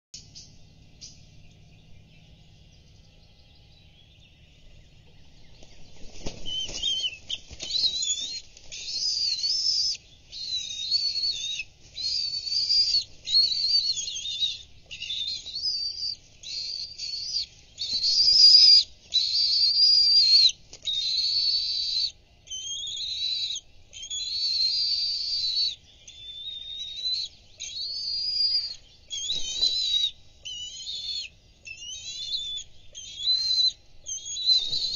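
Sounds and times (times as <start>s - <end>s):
shrill wavering begging calls: 3.6s - 34.9s
wings flapping: 5.5s - 14.5s, 16.9s - 21.0s, 29.1s - 30.7s, 34.2s - 34.9s.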